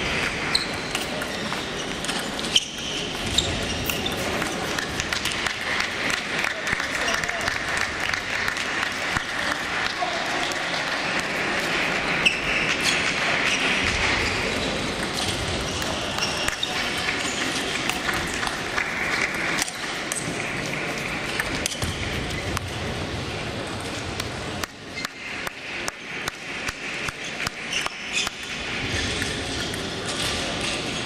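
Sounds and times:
hubbub of voices: 0.0 - 31.0
table tennis balls clicking: 0.2 - 9.6, 10.4 - 22.7.

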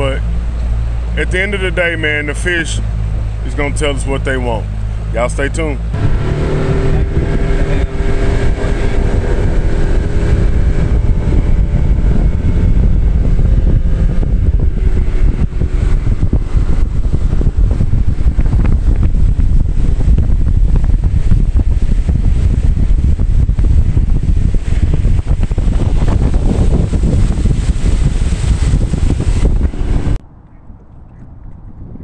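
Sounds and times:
boat motor hum: 0.0 - 31.6
wind buffeting microphone: 5.8 - 32.0.

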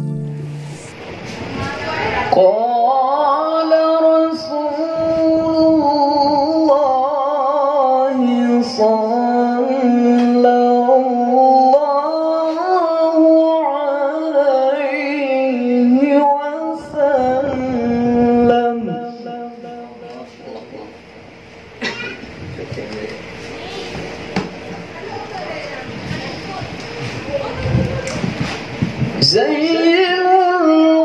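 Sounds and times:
man singing devotional chant: 2.3 - 20.8, 29.2 - 31.0.

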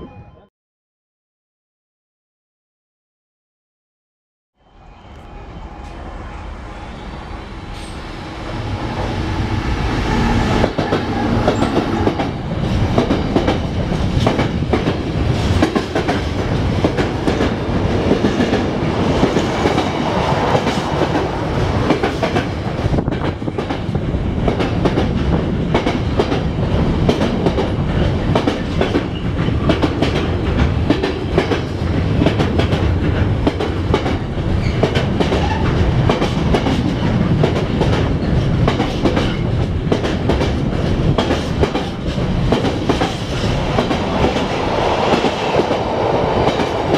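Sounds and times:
diesel locomotive passing: 4.6 - 46.9
wheels clickety-clack over rail joints: 10.6 - 46.9.

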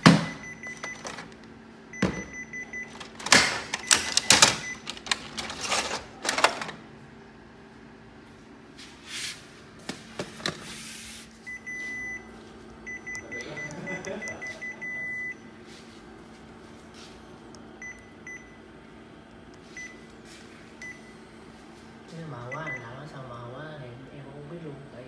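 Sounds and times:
copier key beeps: 0.0 - 1.3, 1.9 - 6.4, 11.4 - 15.6, 17.3 - 18.7, 19.6 - 20.2, 20.8 - 21.2, 22.4 - 23.0
steady low hum: 0.0 - 25.0.

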